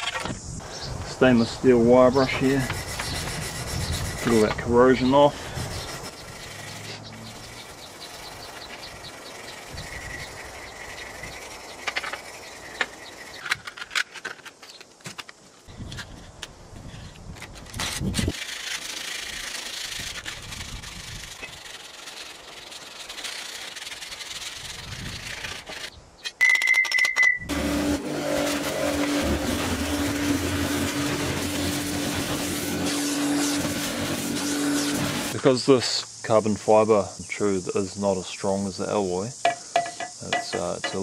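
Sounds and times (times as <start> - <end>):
abrasive scraping metal tube: 2.0 - 13.4
scratchy rubbing: 2.1 - 13.4, 17.5 - 25.9.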